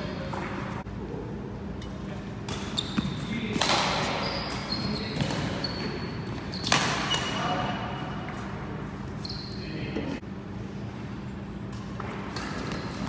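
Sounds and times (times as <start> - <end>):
court shoes squeaking: 1.8 - 10.2, 11.3 - 13.0
racket hitting shuttlecock: 3.5 - 4.2, 6.6 - 7.3.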